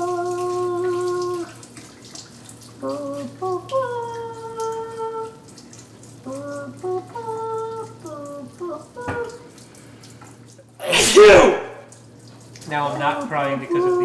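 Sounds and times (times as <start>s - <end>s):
person humming a tune: 0.0s - 1.5s, 2.8s - 5.4s, 6.2s - 9.5s, 13.7s - 14.0s.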